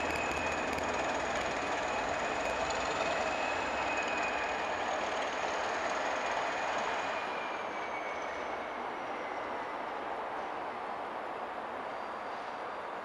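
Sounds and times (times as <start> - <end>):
train pulling away rumbling: 0.0 - 9.5.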